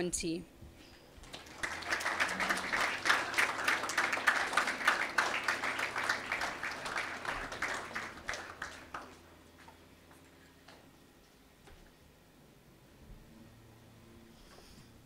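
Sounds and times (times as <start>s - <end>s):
people applauding: 1.2s - 9.5s.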